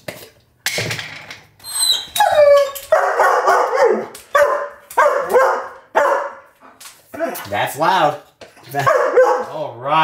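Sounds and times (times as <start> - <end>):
dog barking and yelping: 1.8 - 6.8, 8.8 - 9.6.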